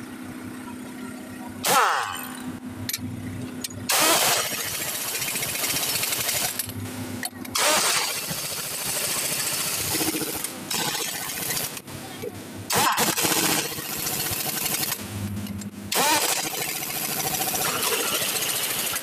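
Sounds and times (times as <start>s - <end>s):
pneumatic impact wrench rattling: 1.6s - 3.0s, 3.9s - 6.8s, 7.5s - 11.8s, 12.7s - 15.0s, 15.9s - 19.0s.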